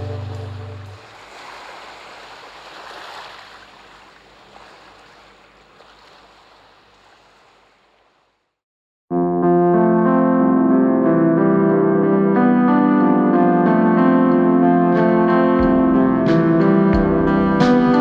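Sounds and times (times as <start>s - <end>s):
small waves washing: 0.0s - 8.5s.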